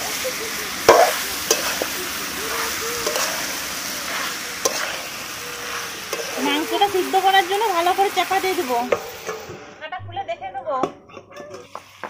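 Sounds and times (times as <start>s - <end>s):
chicken and potatoes sizzling in oil: 0.0s - 9.8s, 10.8s - 12.0s
metal spatula clinking on pan: 0.9s - 2.0s, 2.6s - 3.4s, 4.1s - 6.4s.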